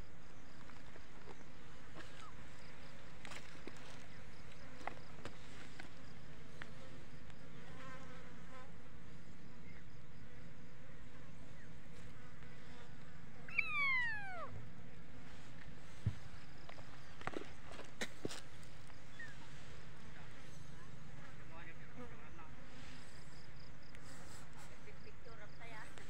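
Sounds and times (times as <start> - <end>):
kitten meowing: 13.5 - 14.6.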